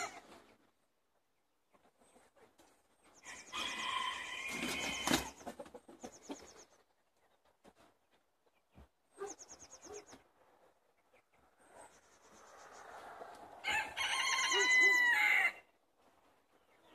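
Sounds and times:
chickens clucking: 0.0 - 13.8
rooster crowing: 3.3 - 5.1, 13.6 - 15.6.

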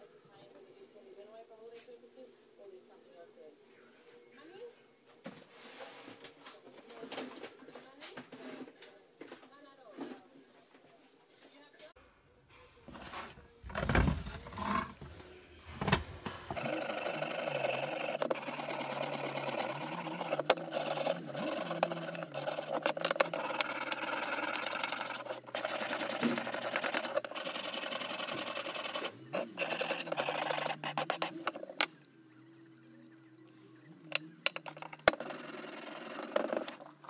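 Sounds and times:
wire brush scratching metal: 16.5 - 37.0.

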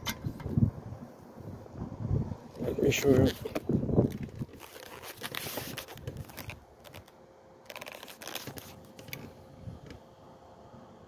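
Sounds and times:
phone handling rustling and clicks: 3.4 - 10.0.

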